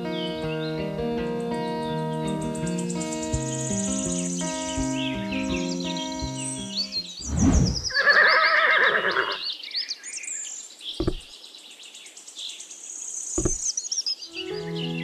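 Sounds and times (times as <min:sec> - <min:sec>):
high bird chirping: 0:02.2 - 0:08.2, 0:13.2 - 0:15.0.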